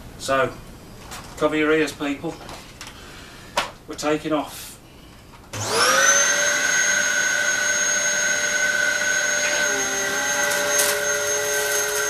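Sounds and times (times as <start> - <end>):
vacuum cleaner high whine: 5.6 - 12.0.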